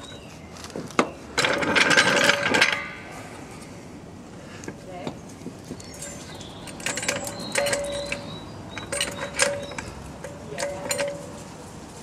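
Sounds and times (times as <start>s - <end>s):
metallic clicks of car jack: 5.8s - 11.4s.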